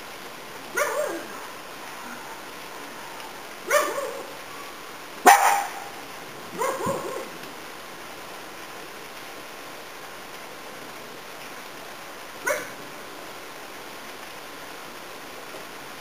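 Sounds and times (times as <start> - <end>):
dog barking: 0.7 - 1.4, 3.6 - 4.4, 5.2 - 6.0, 6.6 - 7.3, 12.4 - 12.8.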